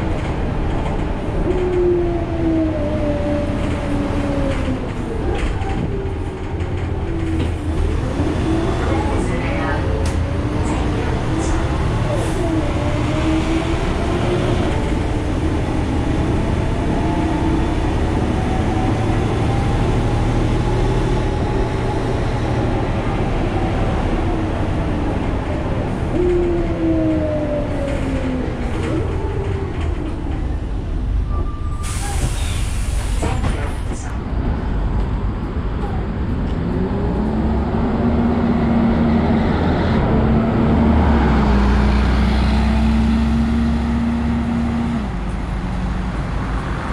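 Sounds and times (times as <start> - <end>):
bus diesel engine: 0.0 - 46.9
pneumatic air hiss: 31.8 - 33.4.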